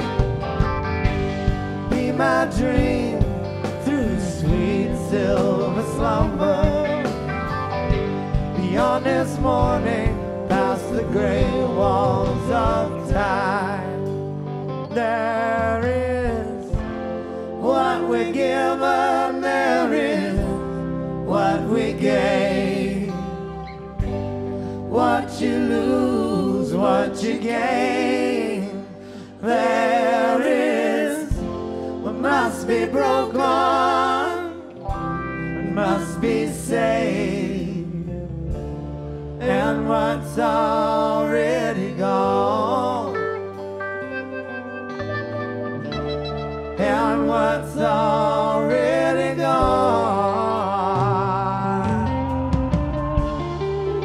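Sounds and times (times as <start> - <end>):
electric guitar lead: 0.0 - 54.0
rock band playing: 0.0 - 54.0.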